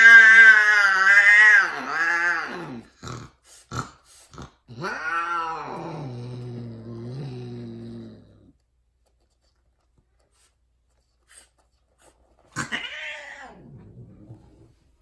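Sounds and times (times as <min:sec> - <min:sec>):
cat loud cry: 0:00.0 - 0:02.8, 0:12.6 - 0:13.7
cat mating yowl: 0:00.0 - 0:03.0, 0:04.6 - 0:08.3, 0:12.5 - 0:14.2.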